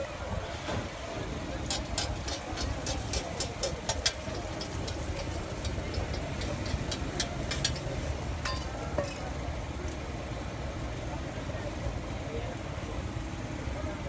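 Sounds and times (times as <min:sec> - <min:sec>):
eggs frying in oil: 0:01.6 - 0:10.2.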